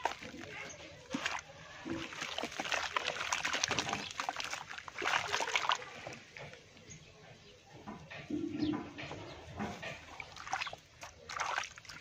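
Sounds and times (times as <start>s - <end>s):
wet splashes: 0.0s - 6.6s, 9.6s - 12.0s
hands sloshing muddy sludge: 0.0s - 6.7s, 9.3s - 12.0s
wet crackles: 0.0s - 6.8s, 9.8s - 12.0s.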